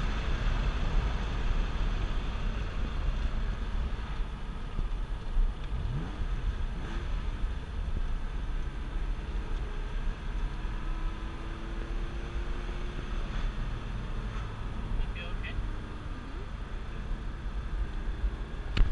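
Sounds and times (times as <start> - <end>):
car engine revving: 0.0 - 18.9
road and tyre noise: 0.0 - 18.9.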